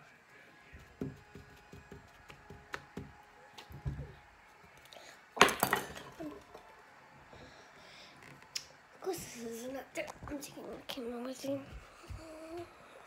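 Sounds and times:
skewer tapping paper plate: 0.8 - 3.2.

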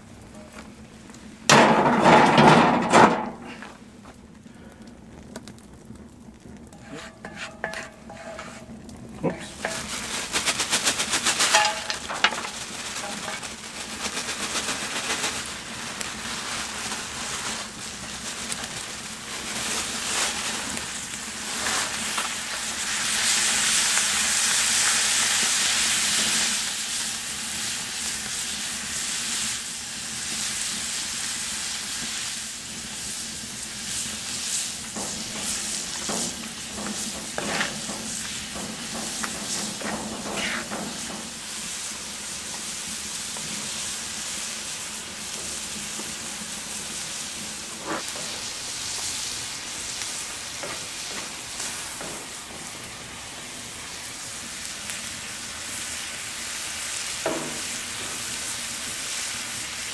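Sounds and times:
food sizzling in a wok: 0.0 - 4.0, 6.3 - 59.9
wooden spatula scraping pan: 6.7 - 10.1, 11.3 - 13.5, 35.0 - 41.3, 47.7 - 48.4.

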